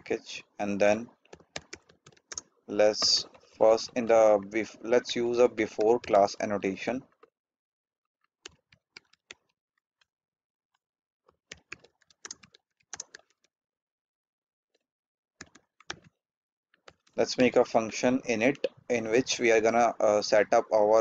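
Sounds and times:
keyboard typing clicks: 0:01.3 - 0:03.4, 0:11.5 - 0:13.2.

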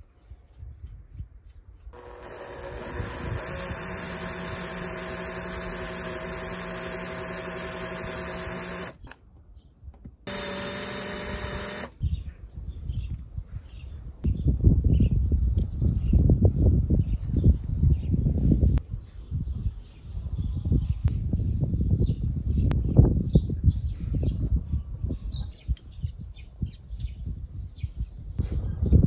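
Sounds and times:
drill whining into metal: 0:02.0 - 0:09.2, 0:10.3 - 0:12.0.

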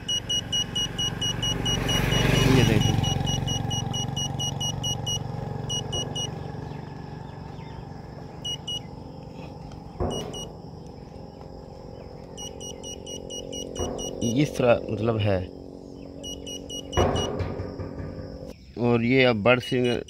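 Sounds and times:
meter beeping: 0:00.0 - 0:06.3, 0:08.4 - 0:08.9, 0:10.0 - 0:10.5, 0:12.4 - 0:14.6, 0:16.2 - 0:18.5, 0:19.6 - 0:20.0.

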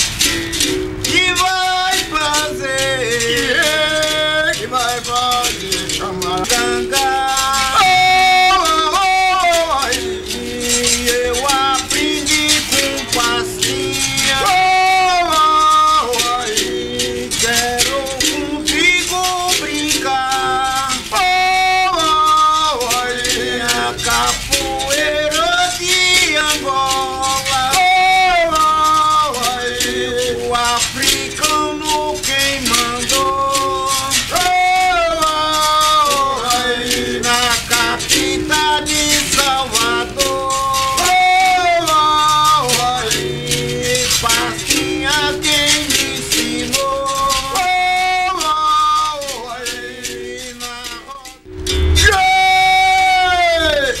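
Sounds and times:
men singing: 0:00.0 - 0:54.0.

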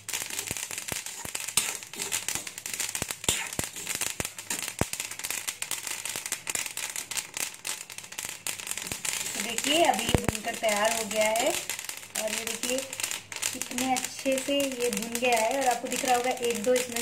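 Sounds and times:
faint hiss: 0:00.0 - 0:17.0
seeds popping and crackling: 0:00.0 - 0:17.0
steel ladle stirring: 0:00.3 - 0:04.8.

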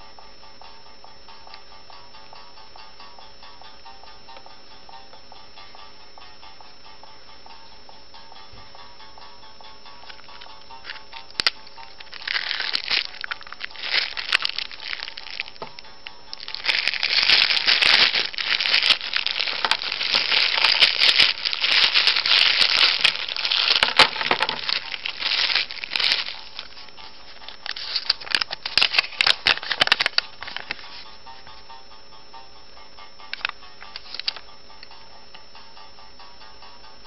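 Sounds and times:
faint background music: 0:00.0 - 0:37.0
cellophane wrapper crinkling: 0:10.1 - 0:31.0, 0:33.4 - 0:34.4
paper leaflet rustling: 0:16.4 - 0:31.0.

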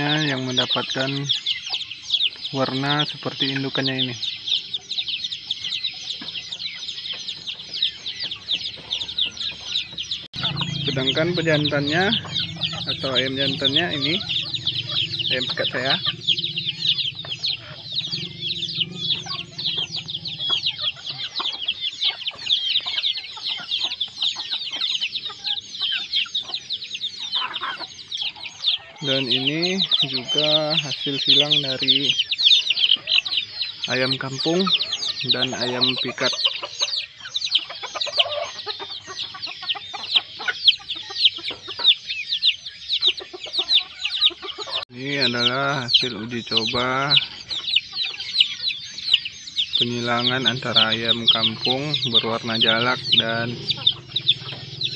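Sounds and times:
chickens chirping: 0:00.0 - 0:54.9
chickens clucking: 0:00.0 - 0:54.9
low steady hum: 0:09.1 - 0:22.7.

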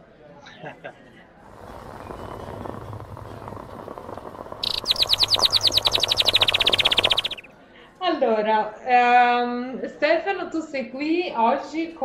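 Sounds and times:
low rustling: 0:01.4 - 0:07.5
rapid bird-like trill: 0:04.2 - 0:07.5.

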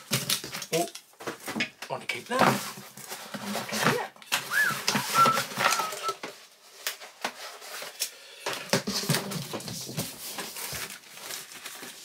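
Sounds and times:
cardboard flaps rustling: 0:02.3 - 0:08.0
cardboard sliding and scraping: 0:02.5 - 0:08.0
thin high whistle-like tones: 0:04.4 - 0:06.2.

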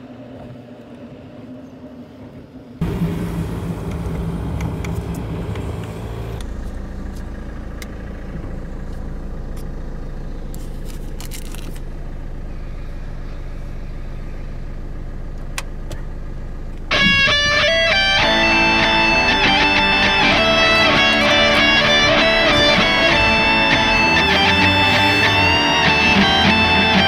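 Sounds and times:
car engine rumble inside cabin: 0:02.8 - 0:27.0
guitar music: 0:16.9 - 0:27.0.

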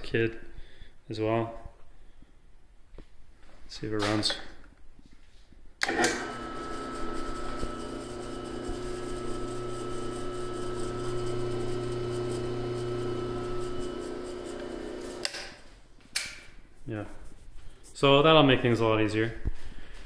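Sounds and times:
drill press paddle switch click: 0:05.8 - 0:06.4
drill press motor humming and whining: 0:05.8 - 0:15.5.

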